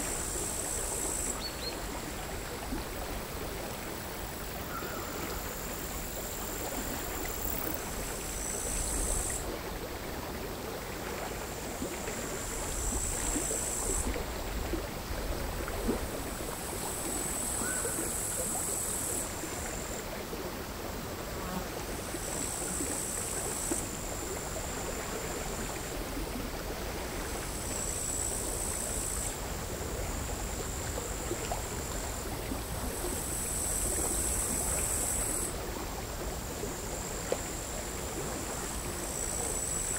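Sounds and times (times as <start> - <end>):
crickets singing: 0.0 - 2.0, 4.2 - 9.4, 12.2 - 14.3, 16.2 - 20.1, 30.2 - 35.6, 36.4 - 39.9
water lapping against shore: 0.0 - 39.9.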